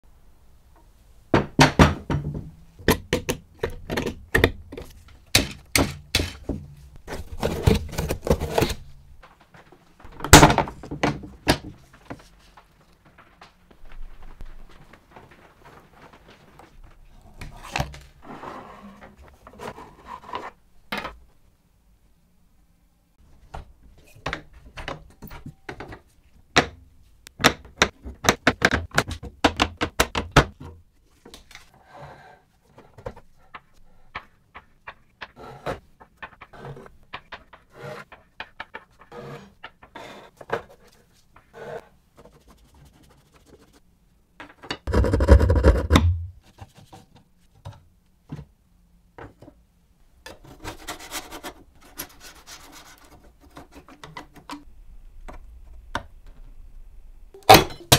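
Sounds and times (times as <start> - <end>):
wooden clicks and rattles: 33.5 - 40.0.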